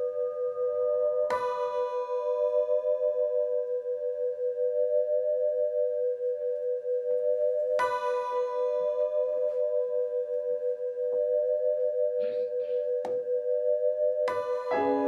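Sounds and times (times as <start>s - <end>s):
struck bell-like tone: 7.4s - 15.0s.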